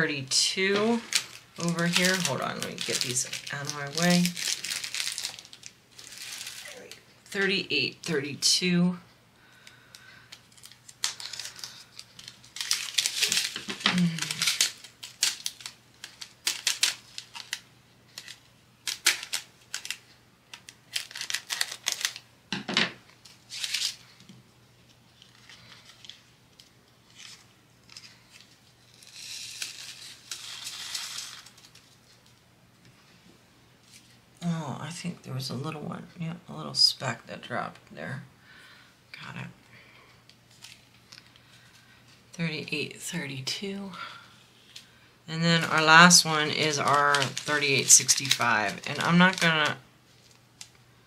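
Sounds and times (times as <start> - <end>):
plastic bags crinkling: 0.6 - 7.2, 9.5 - 22.3, 23.2 - 24.2, 25.2 - 32.4, 40.4 - 42.2, 45.6 - 50.8.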